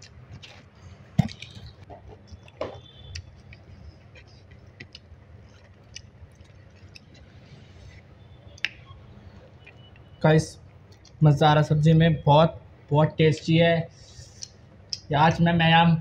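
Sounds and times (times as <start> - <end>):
person chewing food: 0.0 - 8.1.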